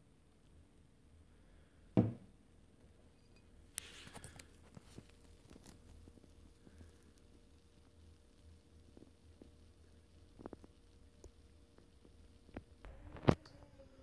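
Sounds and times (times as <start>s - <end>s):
glass knocking on wooden table: 2.0s - 2.2s
faint crackling and clicks: 3.7s - 13.6s.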